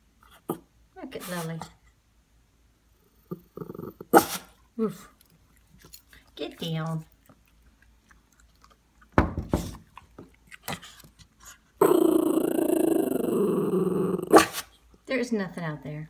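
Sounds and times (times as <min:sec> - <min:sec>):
dog growling: 0:03.0 - 0:04.5, 0:11.8 - 0:14.7
sudden thump: 0:09.2 - 0:09.8.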